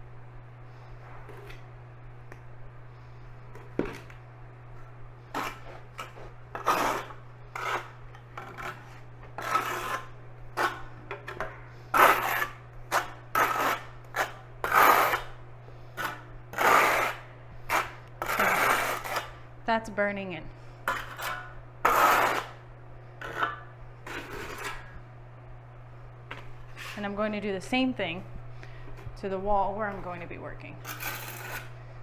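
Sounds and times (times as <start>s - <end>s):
trowel scraping mortar on tile: 5.3s - 15.4s, 16.0s - 19.4s, 20.9s - 22.6s, 23.2s - 24.9s, 30.8s - 31.7s.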